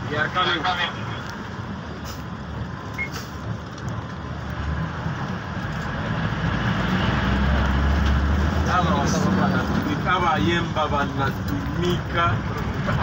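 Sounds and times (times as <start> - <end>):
bus engine and road rumble: 0.0 - 13.0
brief high beep: 3.0 - 3.2.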